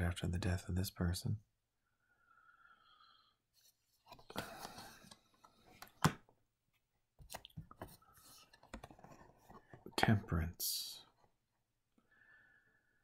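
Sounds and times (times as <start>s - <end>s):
cards rustling: 7.2s - 10.0s.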